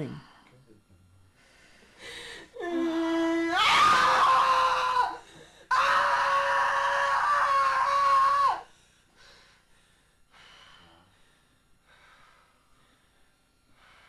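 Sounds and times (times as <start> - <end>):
woman screaming: 2.6 - 8.6.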